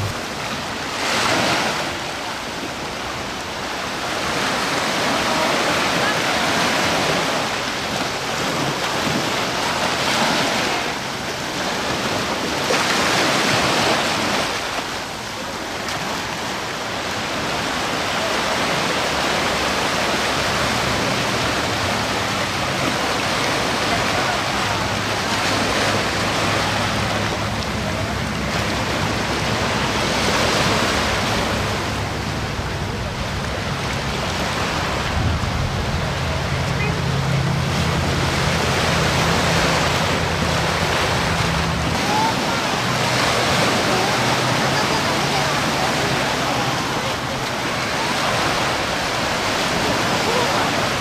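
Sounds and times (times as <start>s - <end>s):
small waves breaking on sand: 0.0s - 51.0s
wind rumbling on microphone: 15.4s - 51.0s.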